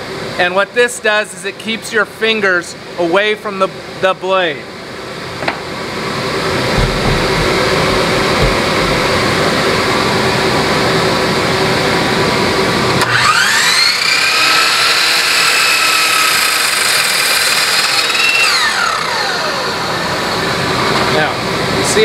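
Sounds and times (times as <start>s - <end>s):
steady background hum: 0.0s - 12.9s
miter saw motor whine: 13.0s - 20.5s.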